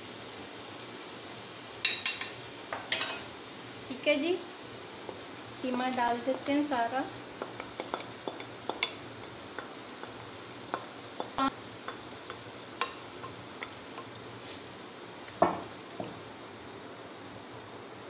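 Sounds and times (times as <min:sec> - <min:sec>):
meat sizzling in hot oil: 0:00.0 - 0:18.0
spoon clinking and scraping: 0:01.8 - 0:03.3.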